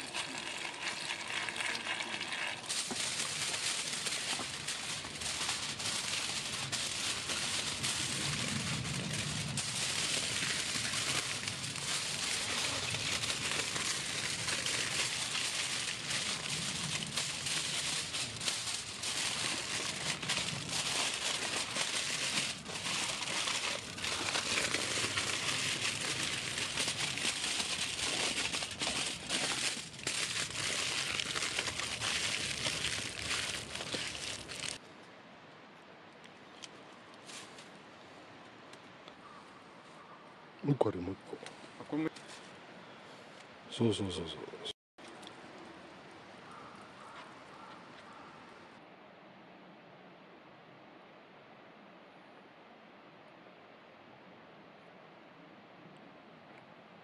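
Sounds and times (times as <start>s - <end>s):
aluminium foil crinkling: 0.0s - 34.8s.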